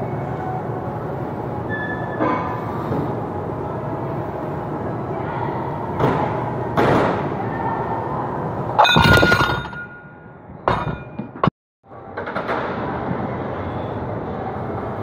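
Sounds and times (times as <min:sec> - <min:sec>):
gym background noise: 0:00.0 - 0:15.0
metal weight plate clanking: 0:08.8 - 0:10.1.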